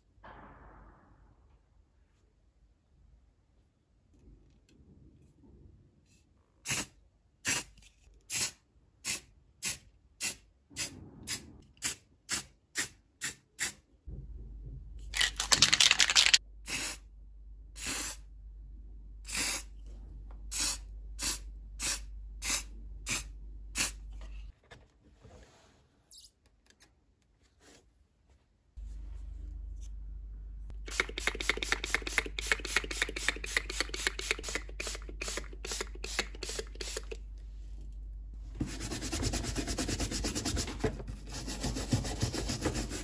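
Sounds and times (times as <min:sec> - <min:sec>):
spray can ball rattling: 0:15.2 - 0:16.4, 0:30.8 - 0:37.2
spray paint hissing: 0:17.8 - 0:18.2, 0:30.9 - 0:37.2.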